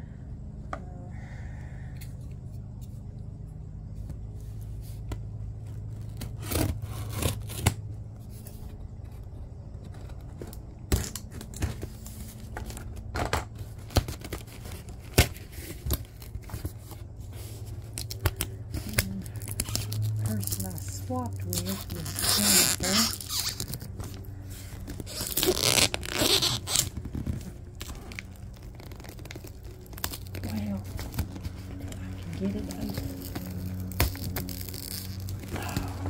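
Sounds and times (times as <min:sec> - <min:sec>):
low steady hum: 0:00.0 - 0:36.0
packaging tape cut and torn: 0:05.8 - 0:07.9, 0:13.6 - 0:16.6, 0:17.8 - 0:24.2, 0:24.8 - 0:36.0.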